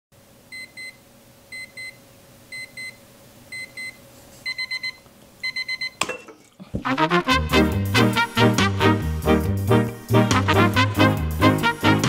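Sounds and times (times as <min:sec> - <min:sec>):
alarm clock electronic beeps: 0:03.6 - 0:06.0.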